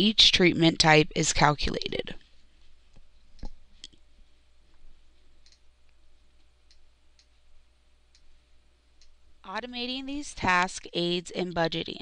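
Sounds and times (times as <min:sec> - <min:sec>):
computer mouse clicks: 0:05.4 - 0:05.7.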